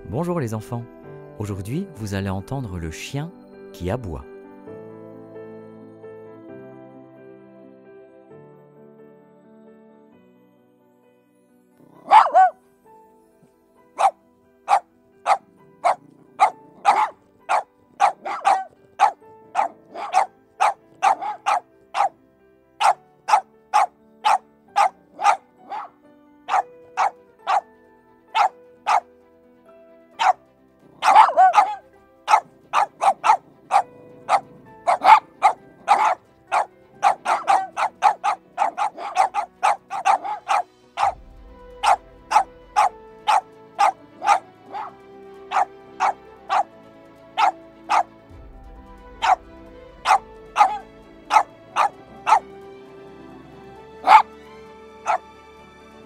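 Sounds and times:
soft background music: 0:00.0 - 0:56.0
dog barking: 0:11.8 - 0:12.6, 0:14.0 - 0:22.2, 0:22.8 - 0:27.7, 0:28.3 - 0:29.1, 0:30.2 - 0:41.2, 0:41.8 - 0:46.7, 0:47.4 - 0:48.1, 0:49.2 - 0:49.4, 0:50.0 - 0:52.4, 0:54.0 - 0:54.3, 0:55.0 - 0:55.2.

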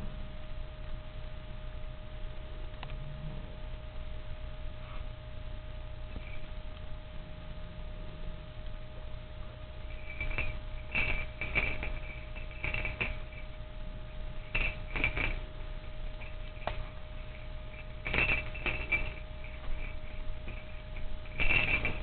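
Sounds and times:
small bells jingling: 0:09.8 - 0:13.6, 0:14.4 - 0:22.0.

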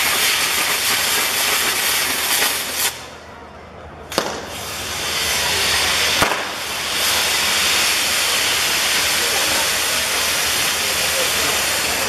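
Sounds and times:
firework bang: 0:00.0 - 0:03.1, 0:04.1 - 0:10.5
fireworks wheel hissing: 0:00.0 - 0:03.2, 0:04.1 - 0:12.0.

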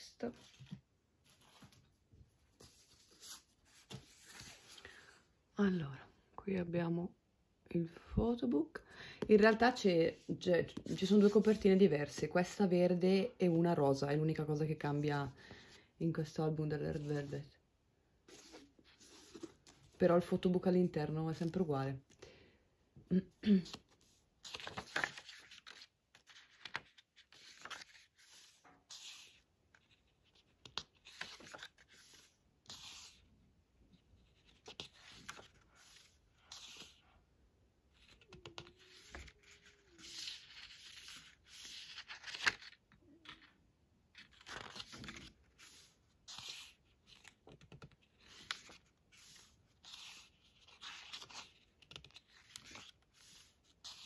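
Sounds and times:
book pages turning: 0:00.2 - 0:05.1, 0:18.2 - 0:20.4, 0:23.6 - 0:37.2, 0:37.9 - 0:54.0
fingers sliding over pages: 0:02.5 - 0:04.9, 0:23.9 - 0:33.3, 0:34.0 - 0:37.1, 0:38.0 - 0:43.5, 0:44.2 - 0:54.0.

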